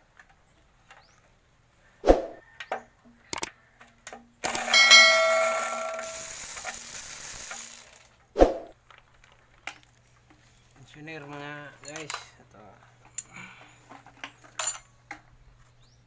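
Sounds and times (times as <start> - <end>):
sharp metal clang ringing: 4.4 - 6.4.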